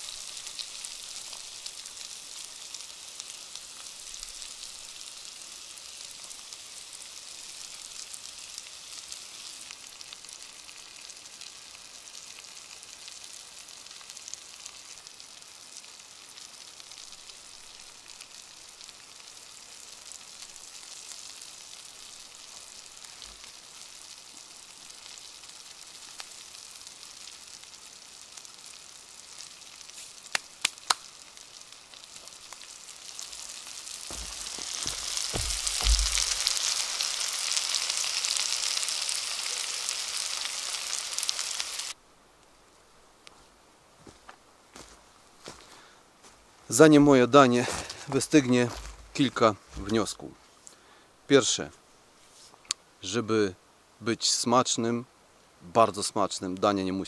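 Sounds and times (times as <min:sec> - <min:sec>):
vegetables sizzling in pan: 0:00.0 - 0:42.0.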